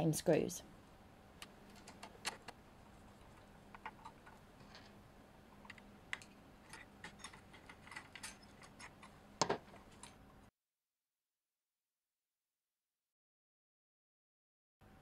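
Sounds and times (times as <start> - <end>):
screwdriver and small parts clicking: 5.6 - 9.2.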